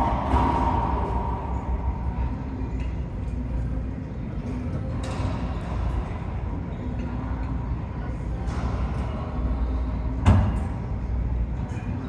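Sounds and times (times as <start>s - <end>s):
low rumble: 0.0s - 4.4s.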